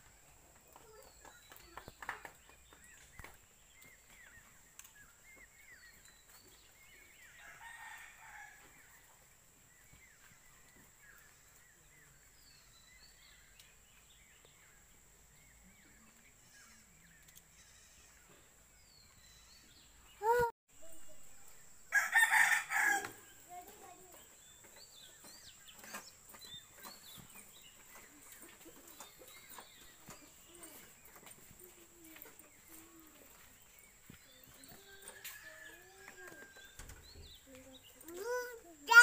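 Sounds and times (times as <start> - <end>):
rooster crowing: 21.9 - 23.2.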